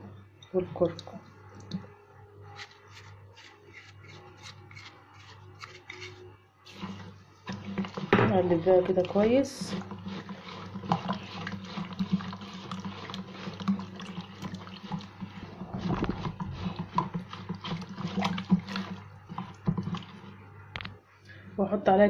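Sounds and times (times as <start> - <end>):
liquid sloshing in bowl: 3.7 - 20.5.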